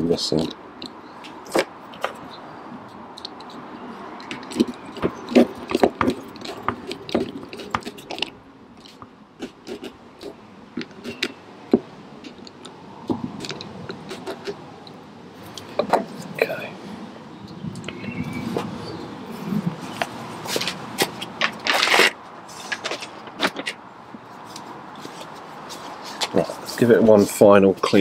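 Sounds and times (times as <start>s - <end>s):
small hard parts clicking and scraping: 2.9s - 16.1s, 20.0s - 23.8s.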